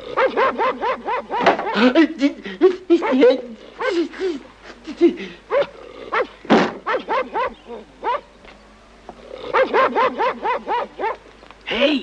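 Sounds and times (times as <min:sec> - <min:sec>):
dog barking: 0:00.2 - 0:01.9, 0:05.5 - 0:08.3, 0:09.5 - 0:11.2.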